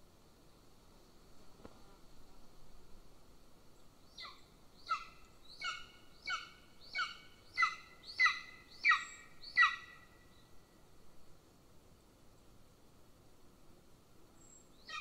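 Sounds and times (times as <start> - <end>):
eagle yelping calls: 4.2 - 10.1.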